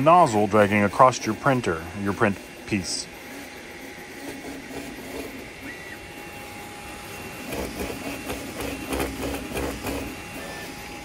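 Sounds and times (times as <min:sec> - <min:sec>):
printer humming: 0:00.0 - 0:11.0
nozzle scraping and knocking: 0:07.1 - 0:11.0.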